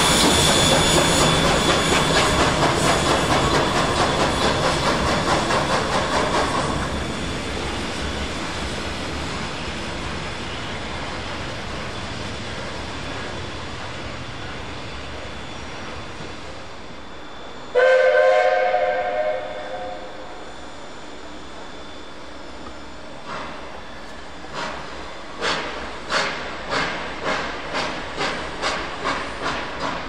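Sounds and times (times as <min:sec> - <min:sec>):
train rumbling past: 0:00.0 - 0:30.0
locomotive whistle blast: 0:17.7 - 0:20.5.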